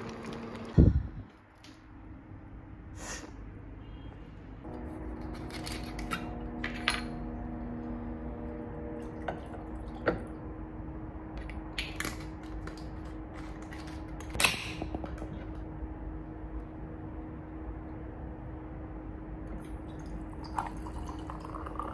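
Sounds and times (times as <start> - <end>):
steady low hum: 4.6 - 21.9
liquid pouring over ice: 19.8 - 21.9
ice and glass clinking: 20.4 - 21.9.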